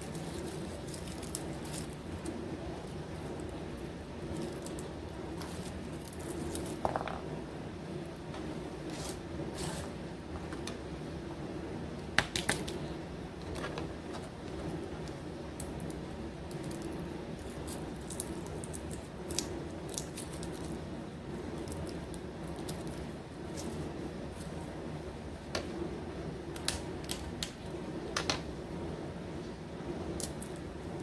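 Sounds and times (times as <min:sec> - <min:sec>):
garlic skins crackling: 0:00.0 - 0:07.1, 0:15.0 - 0:24.7
steady low hum: 0:00.0 - 0:31.0.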